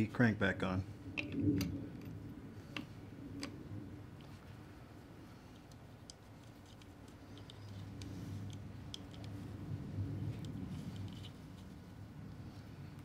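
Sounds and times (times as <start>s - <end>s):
low steady hum: 0.0s - 13.0s
small clicks and ticks: 5.5s - 9.4s.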